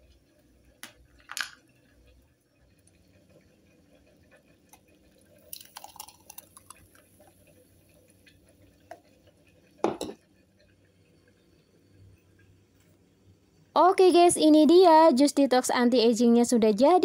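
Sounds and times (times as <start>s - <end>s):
juice pouring into glass: 4.6s - 9.6s.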